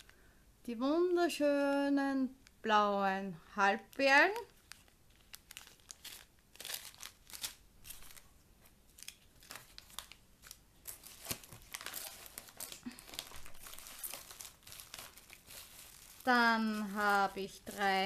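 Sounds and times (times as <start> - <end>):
paper and plastic bags crinkling: 3.7 - 8.3, 8.9 - 18.0.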